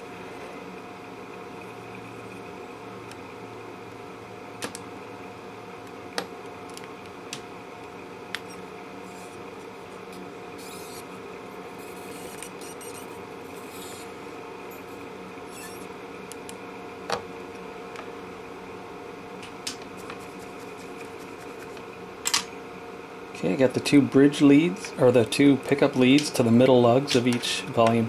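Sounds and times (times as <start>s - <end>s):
steady background hum: 0.0s - 28.0s
scratchy rubbing: 10.6s - 11.1s.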